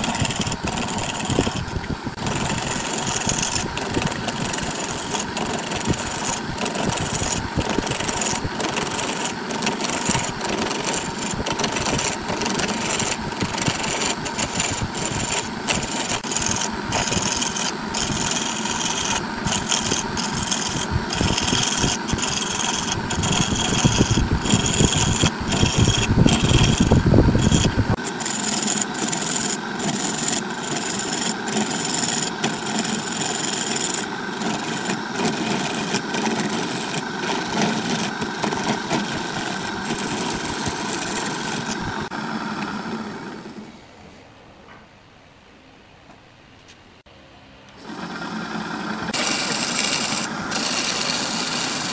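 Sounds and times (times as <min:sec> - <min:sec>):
turning tool scraping wood: 0:00.0 - 0:43.6, 0:47.8 - 0:51.9
wood lathe hum: 0:00.0 - 0:43.8, 0:47.7 - 0:51.9
deep rumble of heavy cut: 0:10.0 - 0:28.0.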